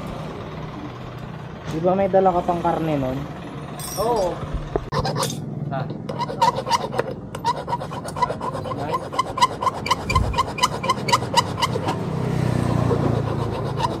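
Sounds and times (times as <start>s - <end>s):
rhythmic rasping strokes with squeaks: 4.8s - 14.0s.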